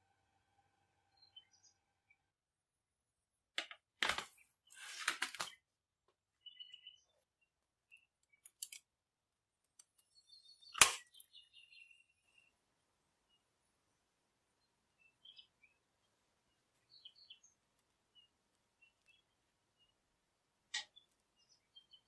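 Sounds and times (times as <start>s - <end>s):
faint bird chirps: 0.0s - 2.3s, 6.3s - 8.6s, 9.9s - 22.0s.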